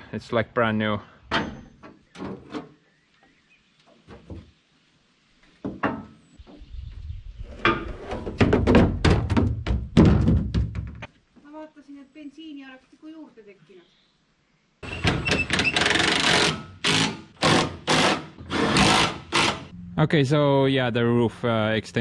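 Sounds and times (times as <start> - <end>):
knocks and thunks of handling: 7.6 - 11.1
low rumble: 19.7 - 21.4.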